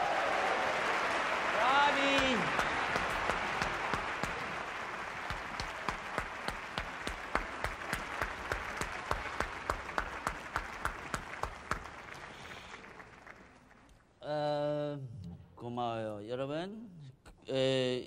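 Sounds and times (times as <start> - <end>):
audience applause: 0.0 - 13.9
individual handclaps: 0.0 - 14.0.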